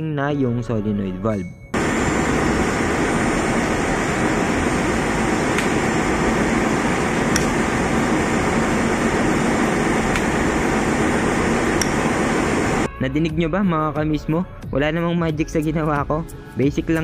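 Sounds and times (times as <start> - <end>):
loud machinery noise: 1.8 - 12.9
solenoid valve clicking: 5.5 - 5.8, 7.3 - 7.7, 10.0 - 10.8, 11.5 - 12.1.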